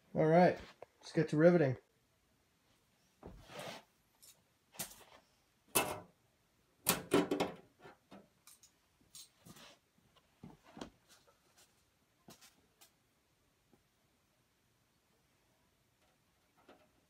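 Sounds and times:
tools and parts being moved: 0:07.0 - 0:09.8.

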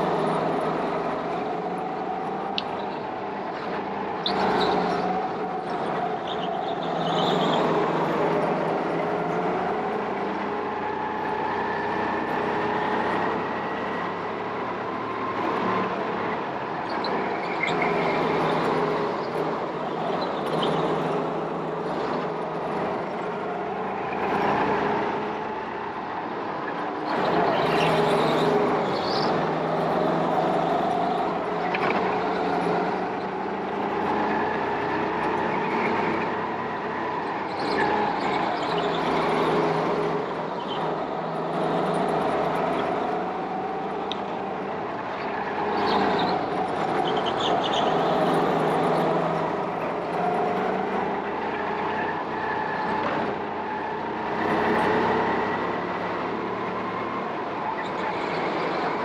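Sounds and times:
go-kart engine revving: 0:26.8 - 0:59.0.

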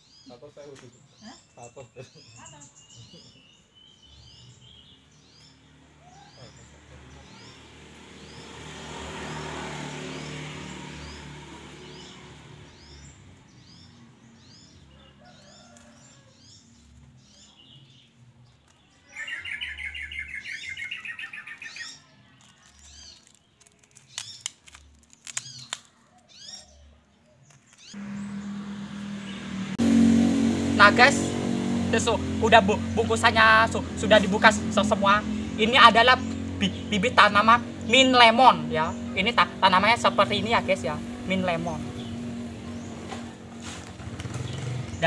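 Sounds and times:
small birds chirping: 0:00.0 - 0:45.0
low engine hum: 0:04.2 - 0:15.4, 0:27.9 - 0:45.0.

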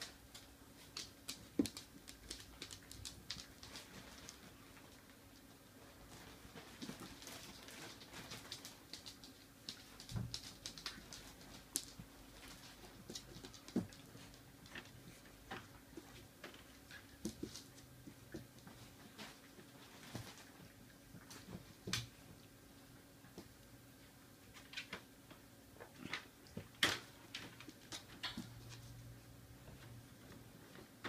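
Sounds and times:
dog claws clicking on tiles: 0:00.3 - 0:04.4, 0:06.8 - 0:14.9.

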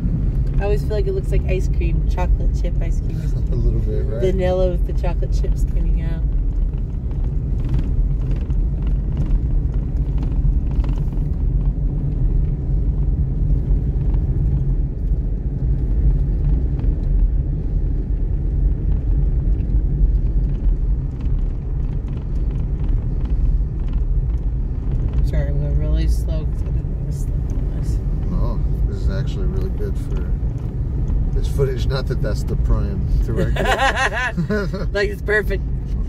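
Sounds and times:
car tyres on snowy road: 0:00.0 - 0:36.0.

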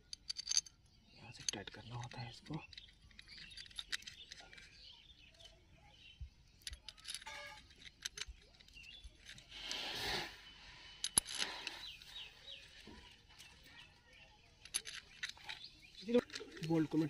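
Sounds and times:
hand tools clinking on metal: 0:00.0 - 0:05.5, 0:06.6 - 0:09.4, 0:14.6 - 0:17.0.

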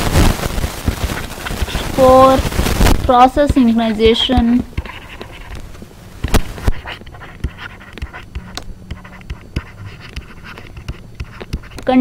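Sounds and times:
steady low hum: 0:00.0 - 0:12.0
stylus tapping on pen tablet: 0:03.0 - 0:05.6, 0:06.2 - 0:12.0.

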